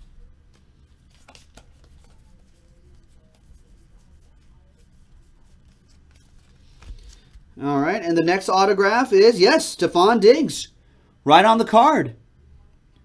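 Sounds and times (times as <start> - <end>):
trading cards rustling: 0.0 - 7.6.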